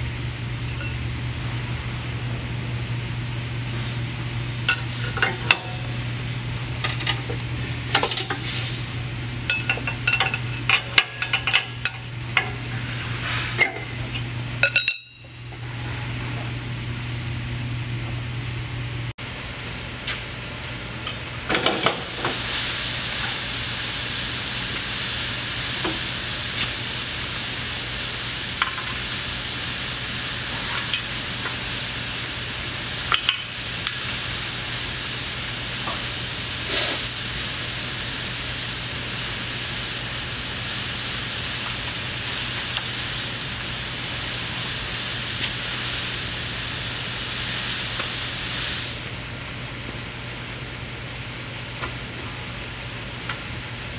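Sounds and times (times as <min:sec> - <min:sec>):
compressed air hissing: 0:36.6 - 0:37.1.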